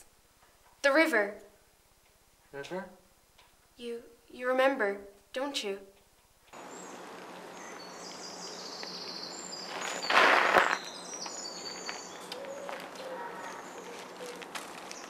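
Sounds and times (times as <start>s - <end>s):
steady background hiss: 0.0s - 15.0s
birds chirping: 6.5s - 15.0s.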